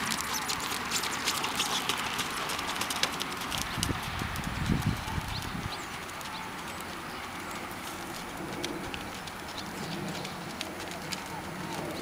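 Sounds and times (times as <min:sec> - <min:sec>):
birds chirping: 0:04.8 - 0:12.0.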